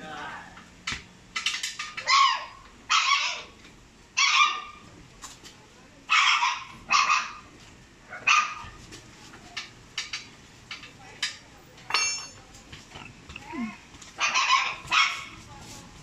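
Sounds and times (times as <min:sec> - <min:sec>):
dog barking: 0:02.0 - 0:03.5, 0:04.2 - 0:04.8, 0:06.1 - 0:07.4, 0:08.1 - 0:08.7, 0:14.2 - 0:15.4.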